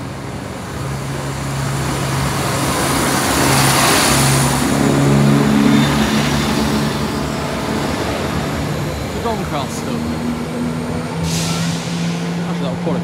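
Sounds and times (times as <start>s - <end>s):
diesel train engines droning: 0.0s - 13.0s
train wheels hissing on rails: 11.1s - 12.9s.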